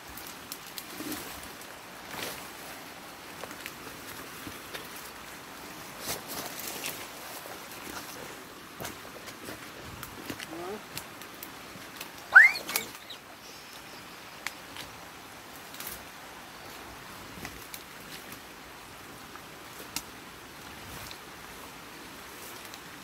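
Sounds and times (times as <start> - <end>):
sticks crackling and snapping: 8.8 - 13.1, 15.6 - 16.1
short rising squeal: 12.3 - 13.0.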